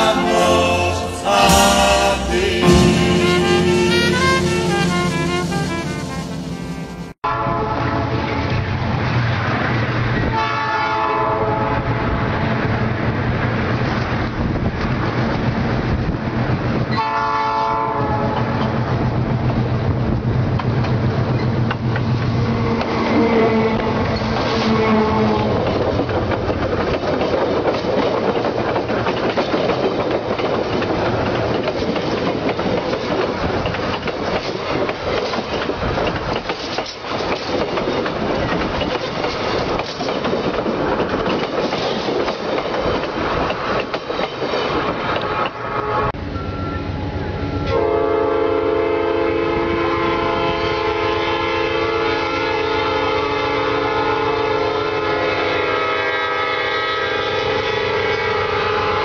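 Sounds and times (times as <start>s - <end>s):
train horn chord: 0.0s - 8.4s, 10.3s - 11.9s, 16.9s - 18.4s, 47.6s - 59.0s
train running on rails: 0.0s - 59.0s.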